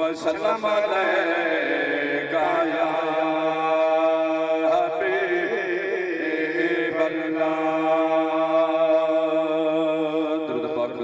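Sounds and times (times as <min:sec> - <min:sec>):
man chanting into a microphone: 0:00.0 - 0:11.0.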